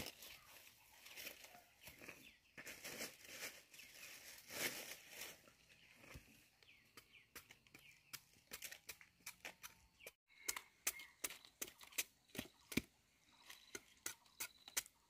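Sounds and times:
machete scraping root skin: 0:08.1 - 0:15.0.

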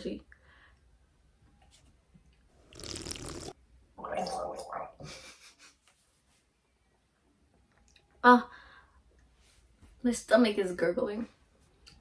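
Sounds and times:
person gurgling: 0:02.8 - 0:05.0.

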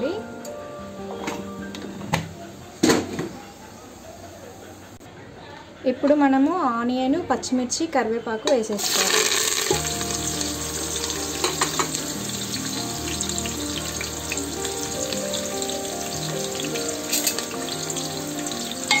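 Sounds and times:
background music: 0:00.0 - 0:02.8, 0:08.8 - 0:19.0
vegetables sizzling in hot oil: 0:08.7 - 0:19.0.

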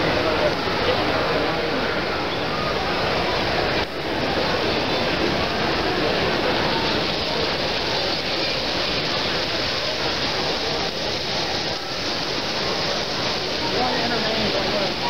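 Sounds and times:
many voices blending: 0:00.0 - 0:15.0
model trains running on track: 0:00.0 - 0:15.0.

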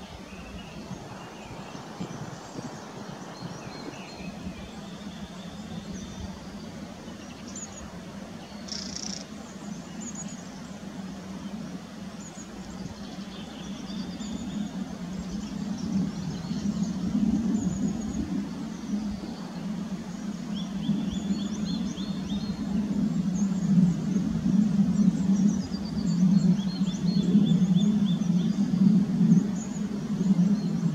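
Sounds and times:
birds chirping and singing: 0:08.6 - 0:10.4.

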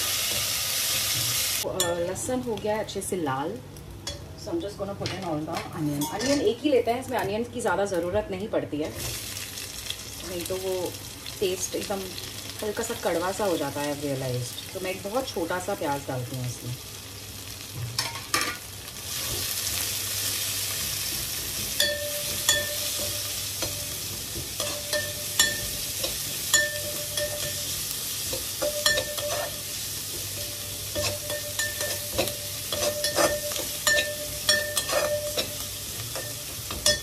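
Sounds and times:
onion sizzling in oil: 0:00.0 - 0:04.2, 0:05.8 - 0:37.0
spoon scraping pan: 0:21.3 - 0:29.8, 0:30.4 - 0:37.0.

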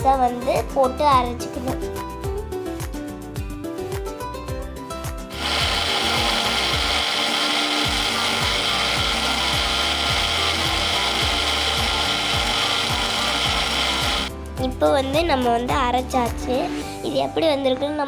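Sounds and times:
background music with a beat: 0:00.0 - 0:16.9
mixer grinder running: 0:05.3 - 0:14.3.

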